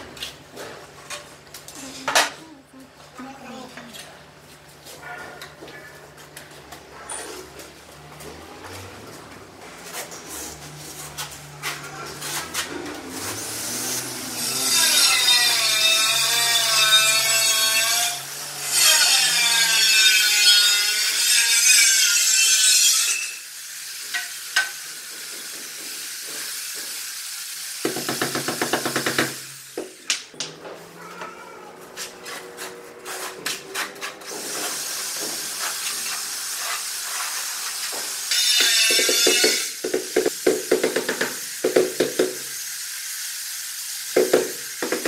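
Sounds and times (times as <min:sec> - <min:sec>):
steel trowel scraping concrete: 0:09.8 - 0:24.7, 0:31.9 - 0:39.9.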